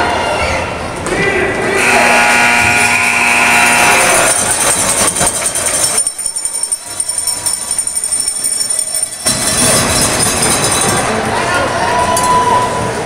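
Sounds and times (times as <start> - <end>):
steady held tone: 1.8 - 11.3.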